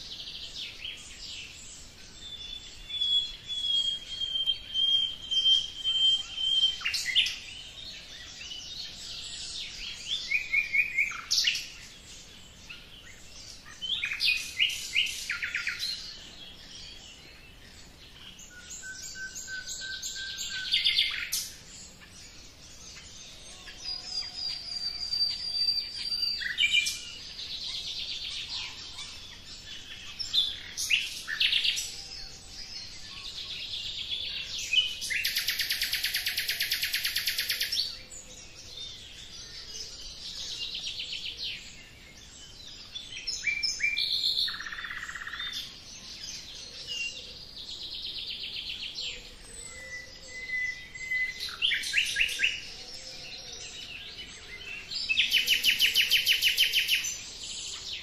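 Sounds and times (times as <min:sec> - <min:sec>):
songbirds chirping: 0:00.0 - 0:58.0.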